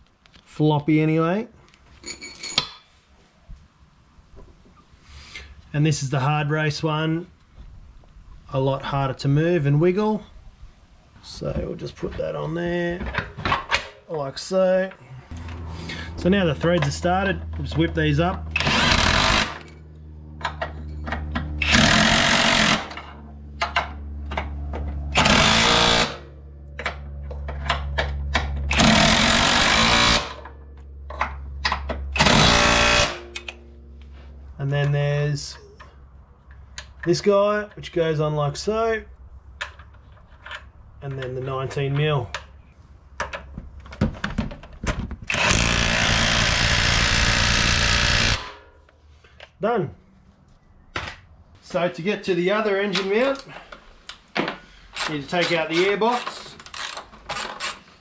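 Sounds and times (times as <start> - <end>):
impact wrench running: 15.3 - 30.6, 31.3 - 33.7, 45.3 - 48.7
ratchet bursts: 18.5 - 19.8, 21.6 - 23.1, 25.1 - 26.3, 28.6 - 30.4, 32.1 - 33.6, 45.3 - 48.6, 54.9 - 58.0.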